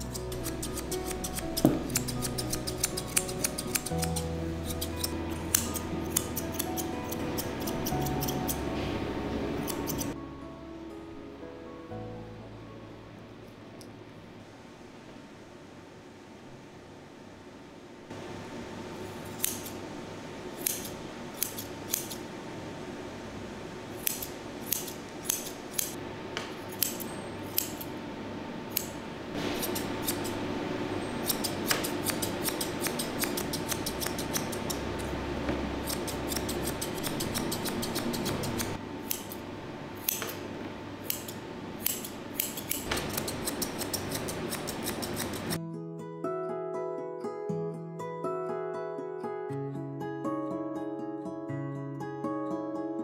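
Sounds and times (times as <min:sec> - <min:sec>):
scissors snipping fur: 0:00.0 - 0:08.7, 0:09.6 - 0:10.2, 0:19.4 - 0:19.8, 0:20.6 - 0:22.2, 0:24.0 - 0:26.0, 0:26.6 - 0:27.9, 0:28.7 - 0:29.0, 0:29.6 - 0:30.4, 0:31.2 - 0:35.1, 0:35.8 - 0:39.4, 0:40.0 - 0:40.4, 0:41.0 - 0:45.6
faint steady hum: 0:00.0 - 0:45.6.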